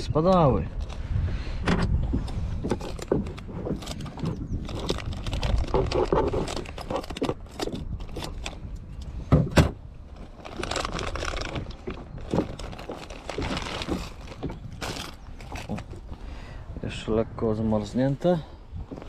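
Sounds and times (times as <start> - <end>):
plastic bag rustling: 2.8 - 8.7, 10.1 - 16.2.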